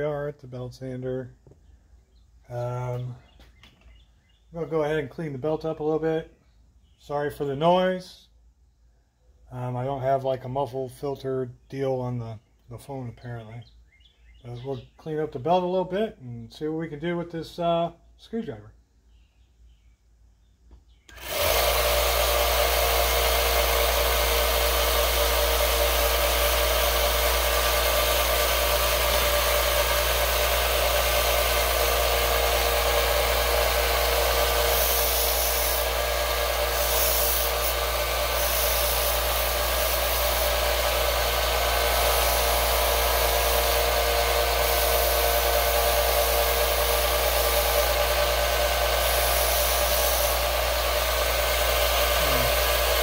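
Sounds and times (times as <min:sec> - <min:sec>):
belt sander running: 0:21.1 - 0:53.0.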